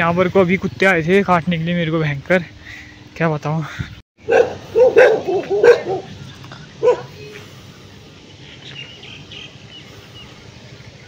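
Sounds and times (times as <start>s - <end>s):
dog barking: 4.2s - 6.1s, 6.8s - 7.2s.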